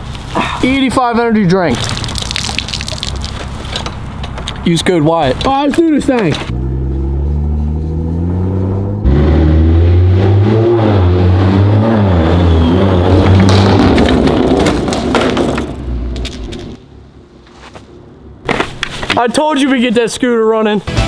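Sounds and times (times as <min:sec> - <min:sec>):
exhaust cracks: 0:00.0 - 0:16.8
car engine revving: 0:06.5 - 0:16.2.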